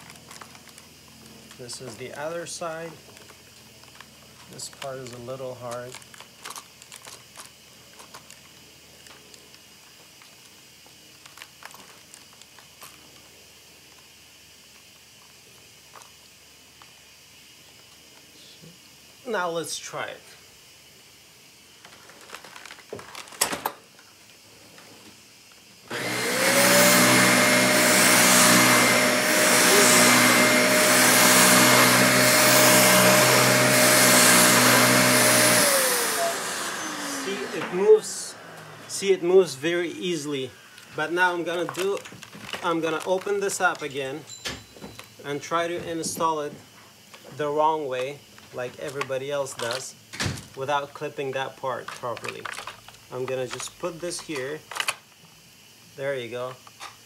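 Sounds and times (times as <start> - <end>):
upright vacuum motor whine: 25.5 - 48.3.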